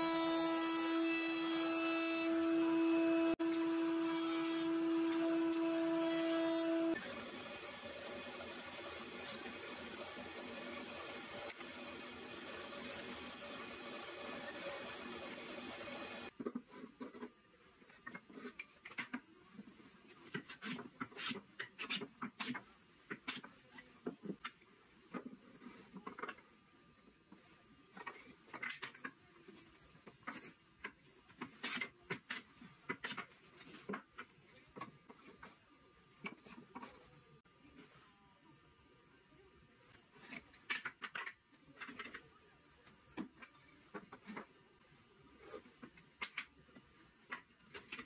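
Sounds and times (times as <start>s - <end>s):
drill press running: 0.0s - 16.3s.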